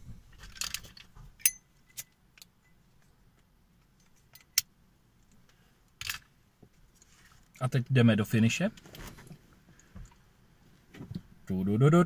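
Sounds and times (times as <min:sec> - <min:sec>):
metal objects clicking and clinking: 0:00.4 - 0:03.1
soft rustling: 0:06.6 - 0:07.6, 0:08.7 - 0:11.3.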